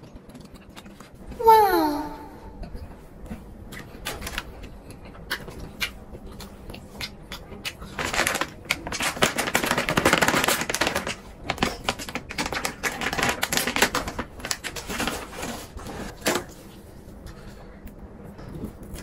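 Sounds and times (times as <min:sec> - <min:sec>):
plastic packaging crinkling: 0:07.8 - 0:16.6.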